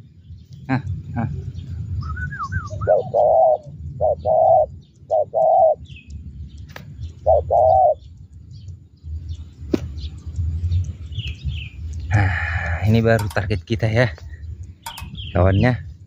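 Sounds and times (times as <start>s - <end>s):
low rumble: 0.0s - 5.1s, 8.0s - 16.0s
small birds chirping: 0.0s - 16.0s
dove cooing: 1.2s - 5.9s, 7.2s - 8.1s
sharp clicks: 9.7s - 15.7s.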